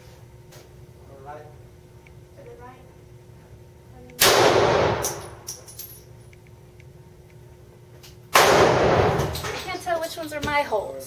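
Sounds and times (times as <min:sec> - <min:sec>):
gunshots with echo: 0:04.2 - 0:05.2, 0:08.3 - 0:09.4
faint clinks: 0:05.2 - 0:06.3.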